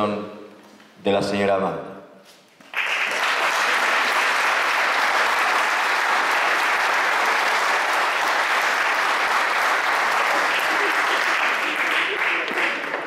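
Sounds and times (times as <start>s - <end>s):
audience applauding: 2.6s - 13.0s.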